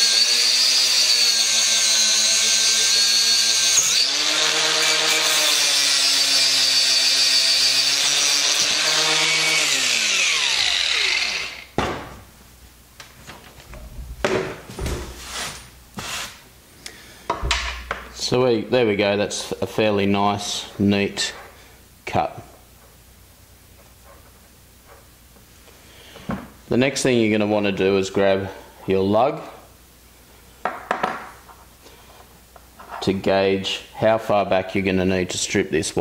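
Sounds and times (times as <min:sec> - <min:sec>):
grinder winding down: 0:00.0 - 0:11.7
angle grinder cutting cable: 0:00.0 - 0:11.8.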